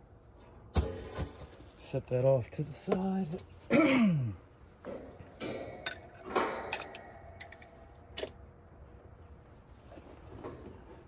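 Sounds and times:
tools clicking and clinking: 0:04.9 - 0:08.4.

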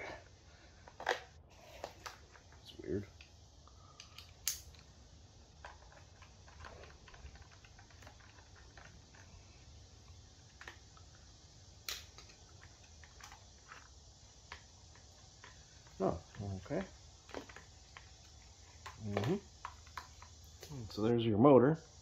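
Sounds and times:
plastic parts clicking and knocking: 0:05.6 - 0:09.3, 0:14.5 - 0:20.7.

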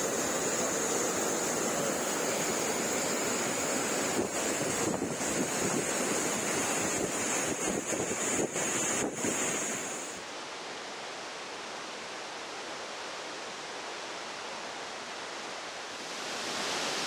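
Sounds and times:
floodwater rushing: 0:00.0 - 0:10.2, 0:15.6 - 0:17.0.

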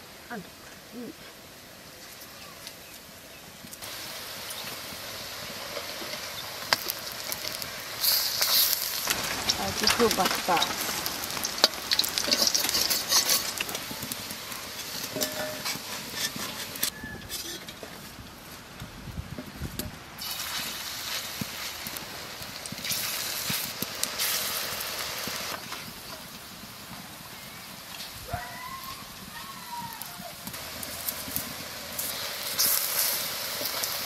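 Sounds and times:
fritters sizzling in hot oil: 0:00.0 - 0:34.0
metal spatula scraping pan: 0:11.5 - 0:13.8, 0:14.8 - 0:17.9.

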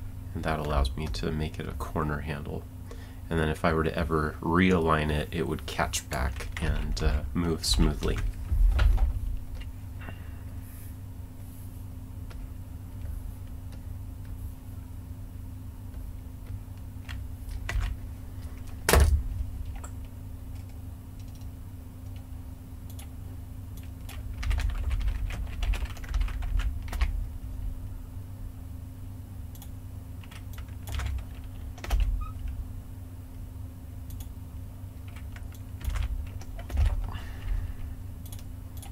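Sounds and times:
steady low hum: 0:00.0 - 0:38.9
keyboard typing: 0:15.9 - 0:18.0, 0:19.7 - 0:22.3, 0:23.7 - 0:27.1, 0:29.5 - 0:32.5, 0:35.0 - 0:37.1.

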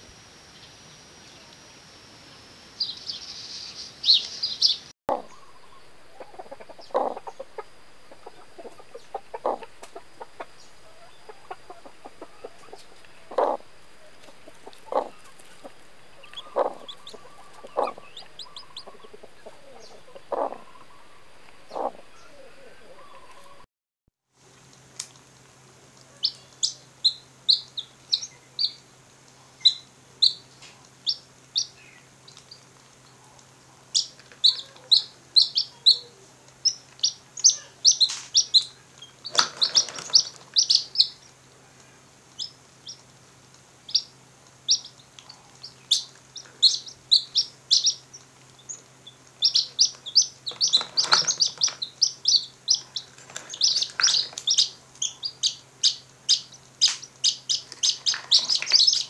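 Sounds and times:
faint low hum: 0:00.0 - 0:23.6
chicks peeping: 0:02.8 - 0:23.7, 0:26.1 - 0:59.0.

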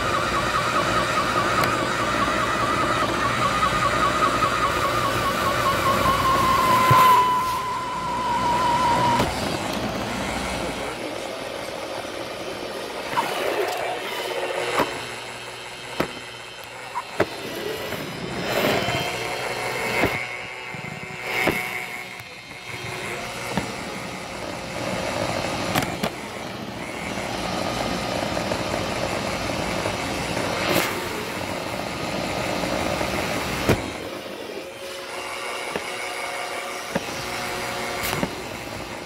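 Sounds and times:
robot vacuum whirring: 0:00.0 - 0:39.0
robot vacuum bumping into things: 0:33.6 - 0:34.0.

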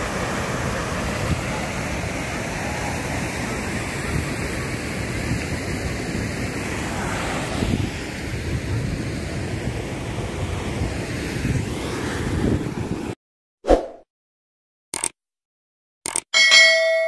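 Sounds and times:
river water rushing over rapids: 0:00.0 - 0:08.5
wind buffeting microphone: 0:00.0 - 0:13.2.

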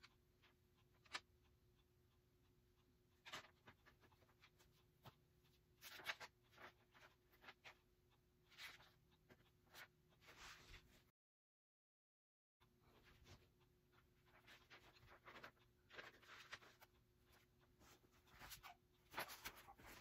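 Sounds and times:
paper rustling and crinkling: 0:05.8 - 0:07.8, 0:14.3 - 0:16.9, 0:17.8 - 0:20.0.

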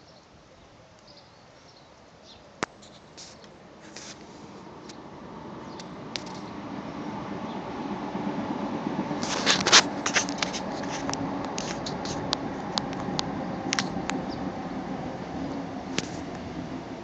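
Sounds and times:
steady low hum: 0:03.4 - 0:17.0
camera handling clicks and rustles: 0:09.2 - 0:13.1.

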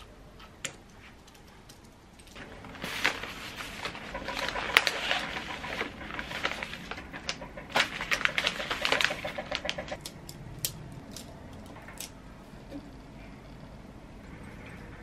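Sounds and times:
paper wrapping rustling and crinkling: 0:02.4 - 0:10.0.

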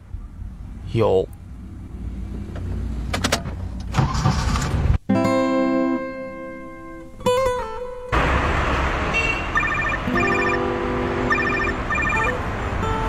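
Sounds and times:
traffic noise: 0:00.0 - 0:05.1, 0:06.2 - 0:13.0
guitar notes ringing: 0:05.1 - 0:08.1, 0:09.7 - 0:12.4
mobile phone ringtone trilling: 0:09.6 - 0:12.4.

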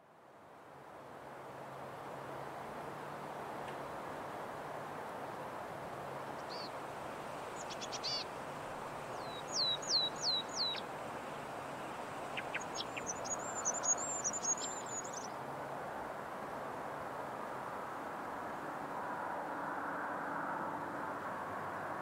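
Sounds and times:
background hiss: 0:00.0 - 0:19.6
small birds chirping: 0:06.3 - 0:06.8, 0:07.5 - 0:15.4.

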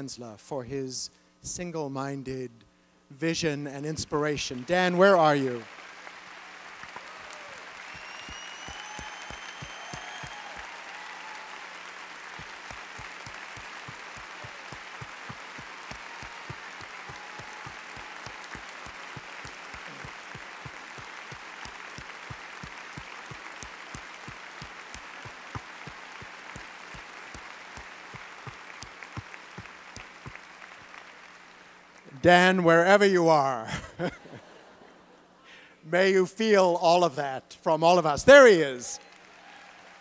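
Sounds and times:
audience applause: 0:04.6 - 0:31.8, 0:39.0 - 0:40.0.

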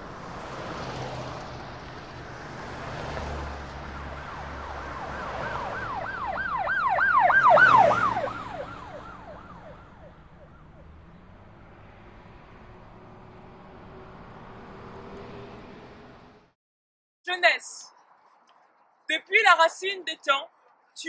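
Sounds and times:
street traffic: 0:00.0 - 0:16.6, 0:17.3 - 0:21.0
siren yelping: 0:03.8 - 0:10.9.

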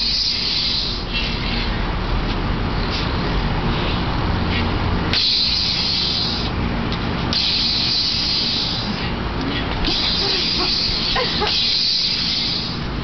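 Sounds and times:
loud hissing crackle: 0:05.1 - 0:06.6, 0:07.2 - 0:09.2, 0:09.8 - 0:13.0
toy lightsaber hum: 0:07.3 - 0:12.9.

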